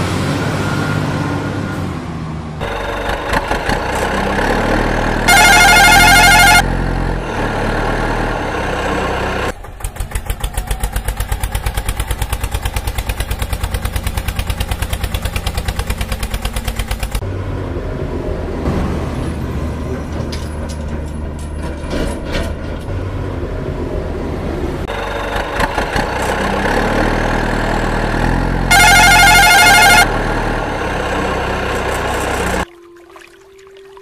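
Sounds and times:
truck engine running: 1.3 - 32.6
truck horn blast: 2.6 - 7.4, 28.7 - 32.6.

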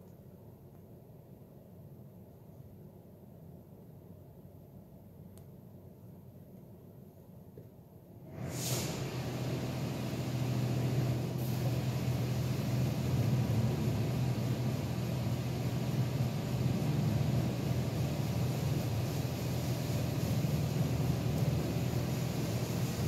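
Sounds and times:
water jets spraying a car: 8.3 - 23.0.

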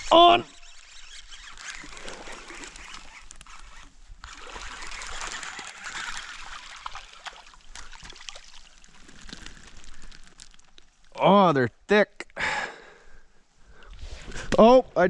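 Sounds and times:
fish splashing in water: 4.3 - 10.7.

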